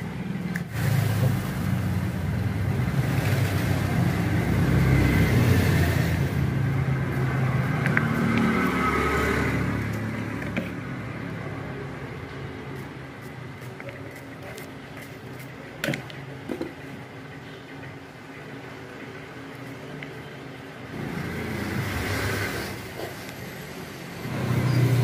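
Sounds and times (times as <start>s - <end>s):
vehicle engine passing: 0.7s - 12.3s.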